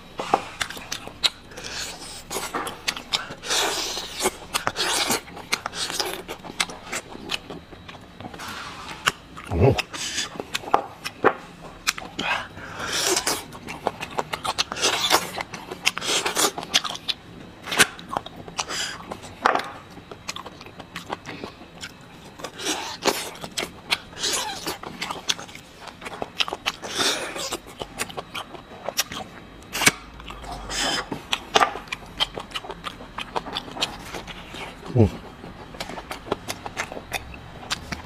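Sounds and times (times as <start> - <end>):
slurping and sucking marrow: 0.2 - 7.4, 29.7 - 31.5
wet chewing and lip smacks: 0.2 - 8.4, 11.8 - 38.0.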